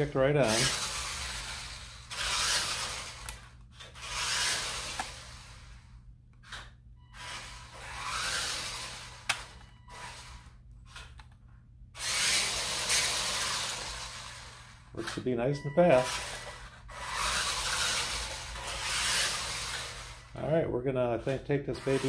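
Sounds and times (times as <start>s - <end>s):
toy truck motor whirring: 0.0s - 11.4s, 12.0s - 20.4s, 21.2s - 22.0s.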